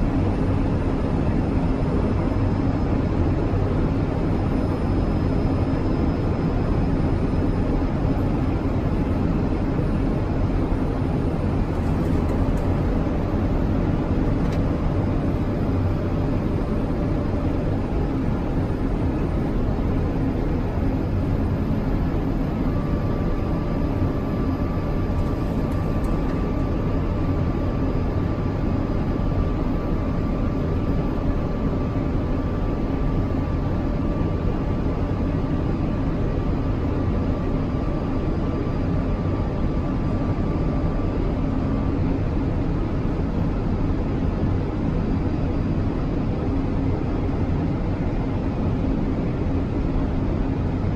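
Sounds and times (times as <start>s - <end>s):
jet engine and airflow hum: 0.0s - 50.9s.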